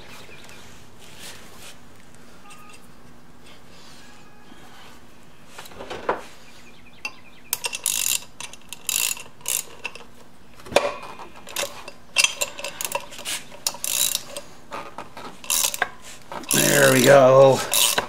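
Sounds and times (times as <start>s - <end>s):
socket ratchet clicking: 7.1s - 10.1s, 11.5s - 14.5s, 15.4s - 16.7s, 17.7s - 18.0s.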